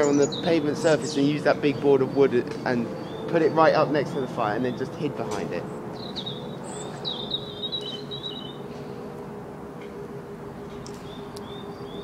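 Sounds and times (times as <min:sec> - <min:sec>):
small birds chirping: 0:00.0 - 0:08.8, 0:11.0 - 0:12.0
bird warbling song: 0:00.0 - 0:08.9, 0:11.0 - 0:12.0
faint steady hum: 0:00.0 - 0:12.0
outdoor background noise: 0:00.0 - 0:12.0.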